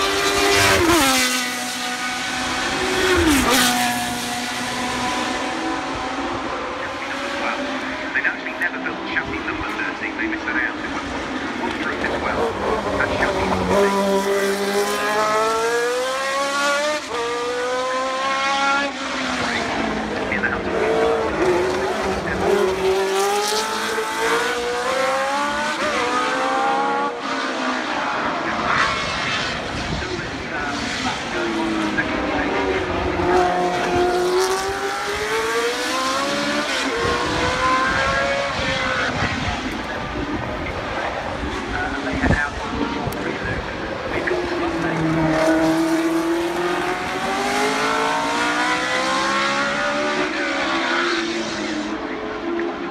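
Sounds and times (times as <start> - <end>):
racing car engine accelerating: 0.0 - 52.9.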